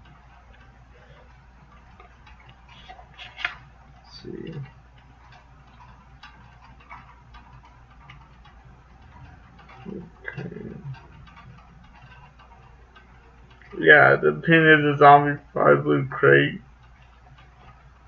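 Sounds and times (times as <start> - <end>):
low voice murmur: 9.9 - 11.0.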